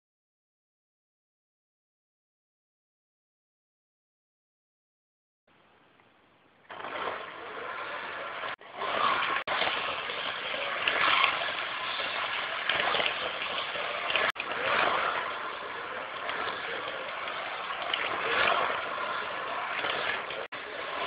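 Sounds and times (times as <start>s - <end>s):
slot car motor whirring: 6.7s - 21.0s.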